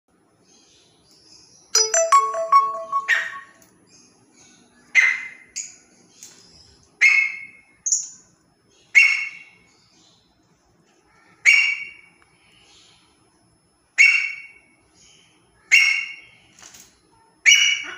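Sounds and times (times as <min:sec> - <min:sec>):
bird harsh calls: 0:08.8 - 0:09.8, 0:11.0 - 0:13.0, 0:14.0 - 0:16.6, 0:17.4 - 0:17.9.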